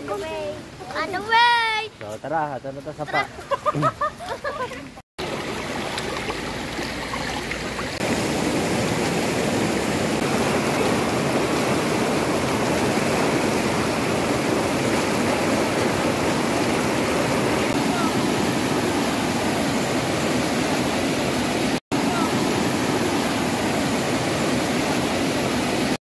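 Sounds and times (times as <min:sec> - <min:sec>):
water rushing over rocks: 0:05.2 - 0:26.0.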